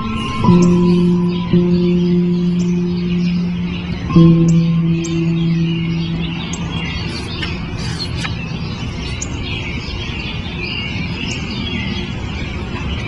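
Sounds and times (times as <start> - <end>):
guitar note: 0.0 - 8.7
birds chirping: 0.0 - 13.0
distant traffic rumble: 0.0 - 13.0.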